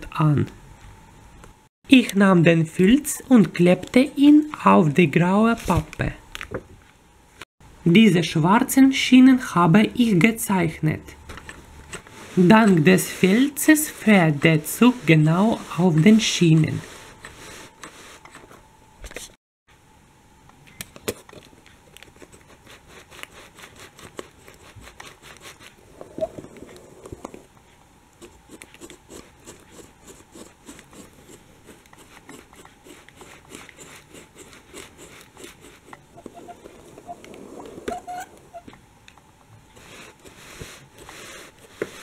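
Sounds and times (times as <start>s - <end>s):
toy train wheels rolling and scraping: 31.7s - 38.7s.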